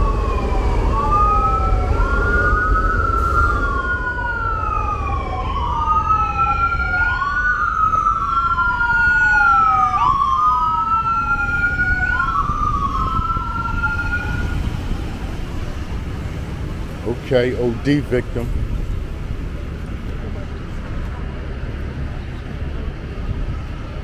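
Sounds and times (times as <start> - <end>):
ambulance siren wailing: 0.0 - 17.1
low city traffic rumble: 0.0 - 24.0.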